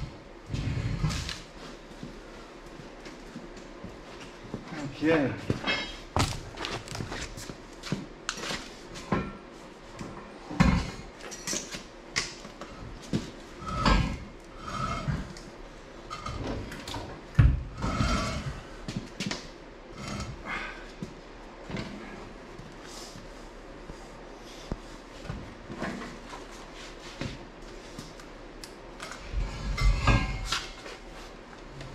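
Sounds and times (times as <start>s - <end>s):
metal parts clanking on concrete: 5.6s - 6.0s.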